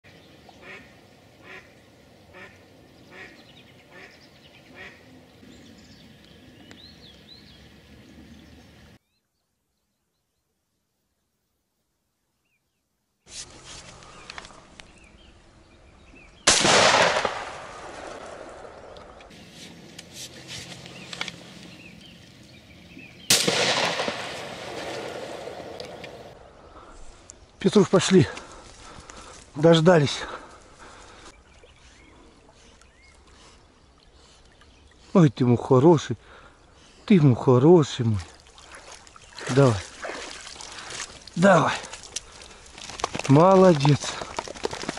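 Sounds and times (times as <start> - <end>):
small songbirds chirping: 0.0 - 11.4, 12.1 - 16.5, 18.7 - 23.6, 25.3 - 44.9
duck quacking: 0.6 - 1.7, 2.3 - 5.0
shotgun shot: 16.5 - 18.7, 23.3 - 25.9.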